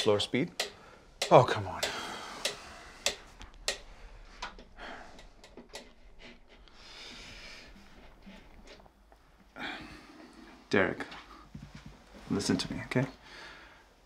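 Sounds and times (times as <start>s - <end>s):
light sharp clicks and taps: 0.0s - 6.0s
breathy exhale: 1.8s - 3.1s, 3.9s - 5.4s, 6.6s - 8.1s.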